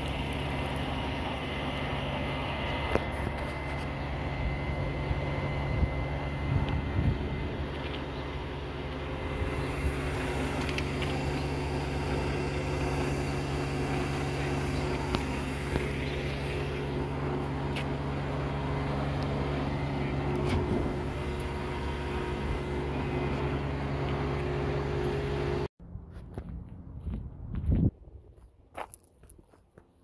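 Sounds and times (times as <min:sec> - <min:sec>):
truck engine idling: 0:00.0 - 0:25.7.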